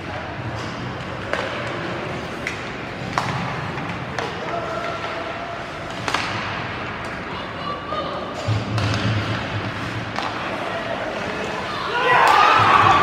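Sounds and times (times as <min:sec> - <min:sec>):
hockey sticks clacking puck: 0:00.0 - 0:07.4, 0:08.2 - 0:13.0
arena noise: 0:00.0 - 0:13.0.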